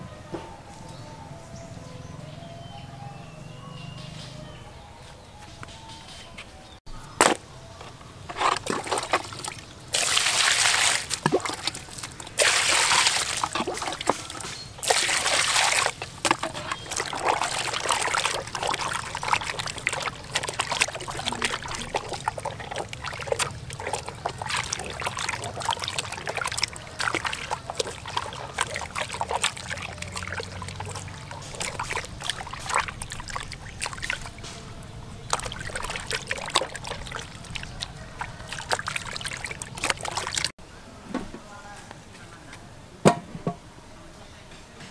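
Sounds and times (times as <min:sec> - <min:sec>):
hands sloshing and squelching: 0:08.3 - 0:40.6
water splashing in basin: 0:08.4 - 0:40.5.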